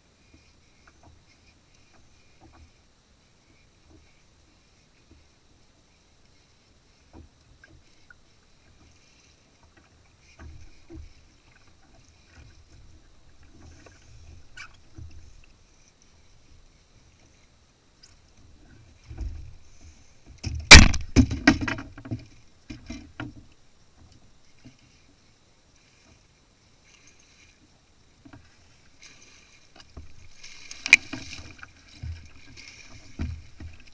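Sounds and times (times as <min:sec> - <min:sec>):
soft low thumps on kayak: 0:18.4 - 0:25.2, 0:29.7 - 0:33.9
sharp knocks on kayak: 0:20.4 - 0:23.4.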